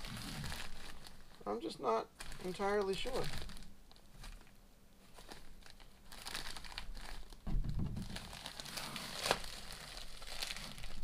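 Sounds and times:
plastic envelope crinkling: 0.0 - 11.0.

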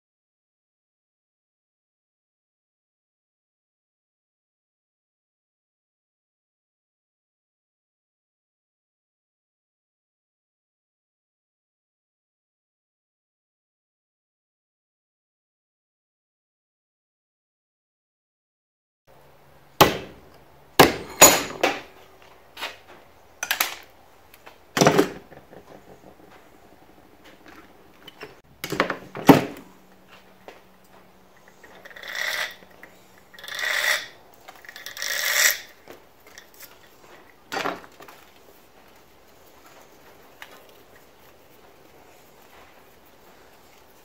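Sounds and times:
scratchy rasps: 31.4 - 35.8.

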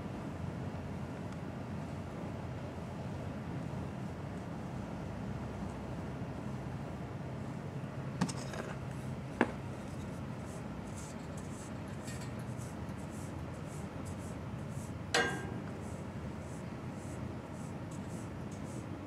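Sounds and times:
brush strokes through fur: 9.8 - 15.0, 15.6 - 19.0
knock with metallic ring: 15.2 - 15.7.

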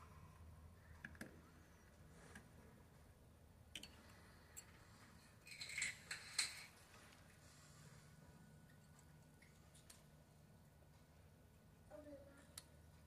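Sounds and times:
metal reel parts clicking: 5.4 - 6.8.

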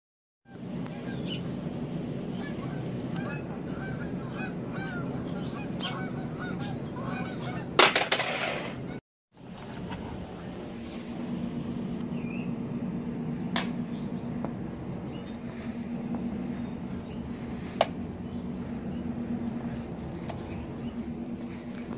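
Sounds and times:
low background rumble: 0.5 - 7.9, 8.7 - 21.9
birds calling: 0.5 - 21.9
plastic cassette clattering on concrete: 7.8 - 8.8.

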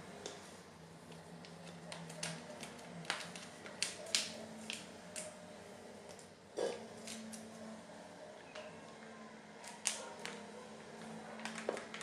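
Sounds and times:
foil pouch crinkling: 1.5 - 5.3.

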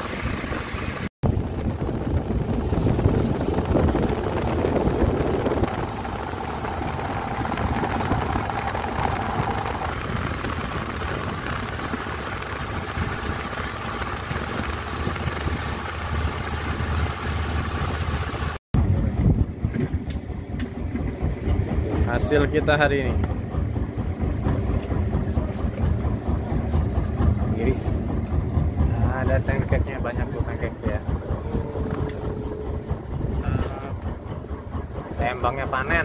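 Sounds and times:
boat engine running: 0.0 - 36.0
water rushing past hull: 0.0 - 36.0.

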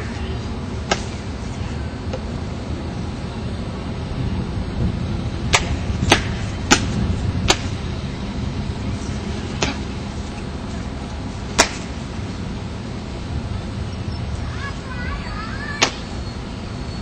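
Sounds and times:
low background rumble: 0.0 - 17.0
sharp hand slaps: 5.5 - 6.9, 7.5 - 7.8, 11.6 - 11.9, 15.8 - 16.1.

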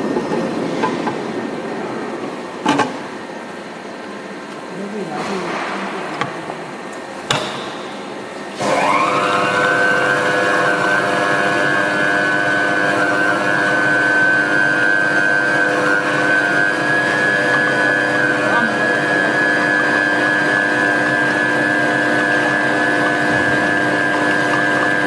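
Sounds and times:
motor and blades whining: 8.5 - 25.0.

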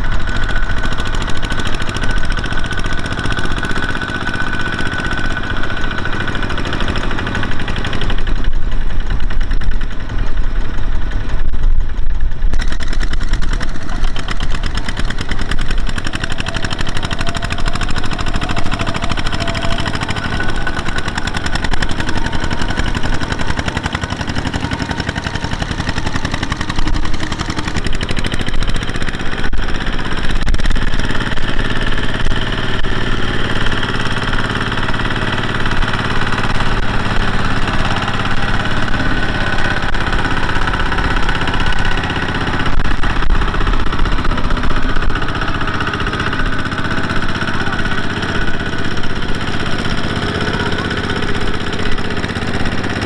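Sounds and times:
diesel tractor engine running: 0.0 - 53.0.

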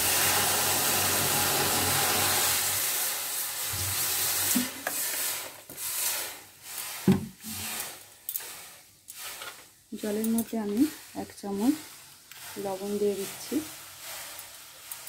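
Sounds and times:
water pouring into metal pan: 0.0 - 9.4.

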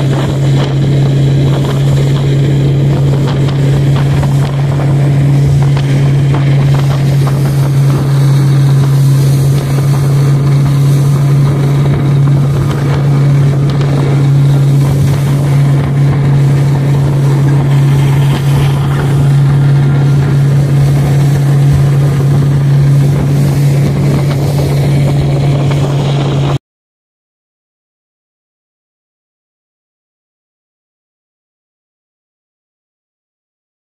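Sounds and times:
boat engine drone: 0.0 - 26.6
water rushing: 0.0 - 26.6
wind: 0.0 - 26.6.

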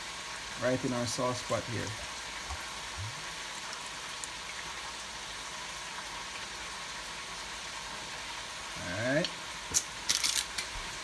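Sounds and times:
wings frying in oil: 0.0 - 11.0.

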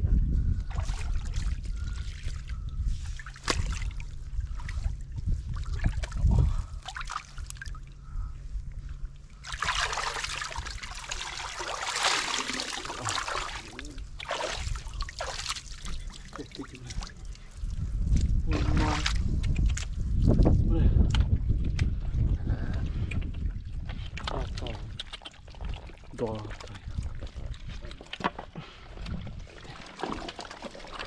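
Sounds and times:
water splashing in rock pool: 9.4 - 17.4, 29.4 - 31.0.

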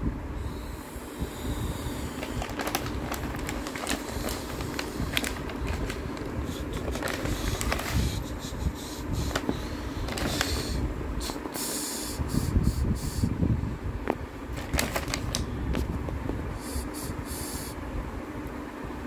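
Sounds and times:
steady low rumble: 0.0 - 19.0
paper bag crinkling: 2.2 - 8.0, 9.3 - 10.8, 14.5 - 15.5.

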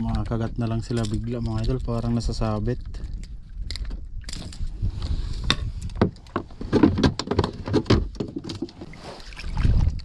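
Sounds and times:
taps and knocks on a boat: 5.5 - 8.9.

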